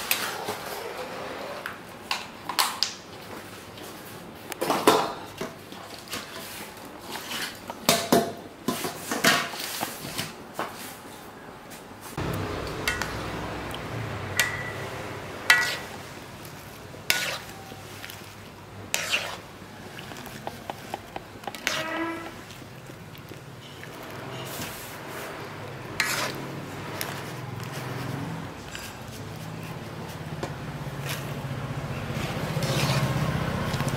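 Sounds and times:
strainer scraping metal wok: 0:14.4 - 0:22.7, 0:23.9 - 0:29.0, 0:32.1 - 0:33.6.

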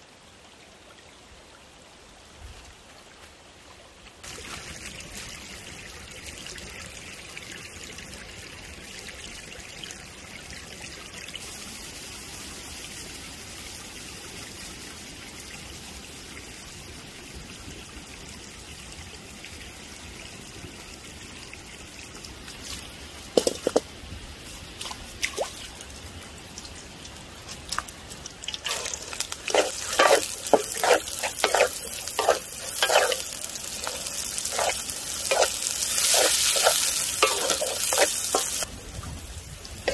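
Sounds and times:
sauce simmering and bubbling: 0:27.9 - 0:38.7
vegetables sizzling in a wok: 0:28.6 - 0:38.7
wooden spatula scraping a pan: 0:28.7 - 0:38.6.

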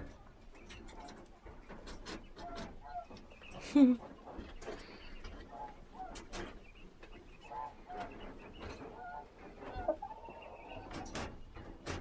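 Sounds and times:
poultry calling: 0:01.9 - 0:11.2.

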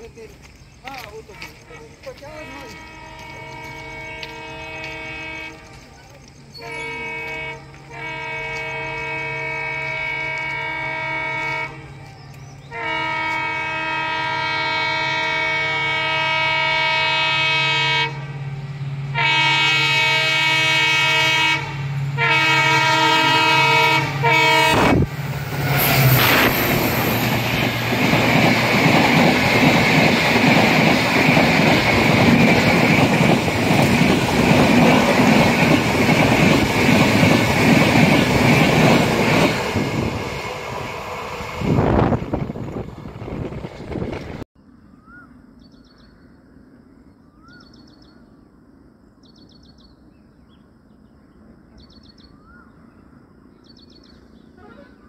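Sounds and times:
train wheels rumbling on rails: 0:00.0 - 0:17.4, 0:18.1 - 0:44.5
train horn blasts: 0:01.3 - 0:05.9, 0:06.5 - 0:27.6.

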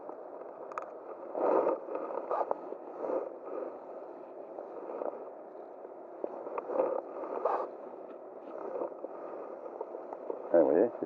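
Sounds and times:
rustling scrapes: 0:06.3 - 0:07.8.

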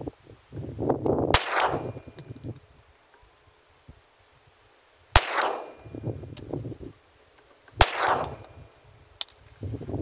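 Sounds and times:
pistol shots with echo: 0:01.4 - 0:02.2, 0:05.2 - 0:06.0, 0:07.8 - 0:08.5.

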